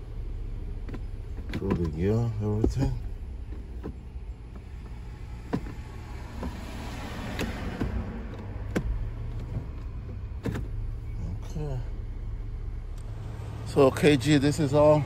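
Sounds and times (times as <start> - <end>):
car engine idling: 0.0 - 15.0
gear selector clicks: 0.8 - 6.6, 7.2 - 10.7.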